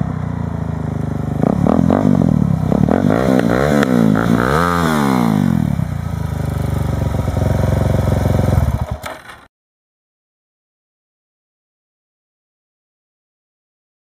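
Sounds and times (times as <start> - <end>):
motorcycle engine revving and idling: 0.0 - 9.5.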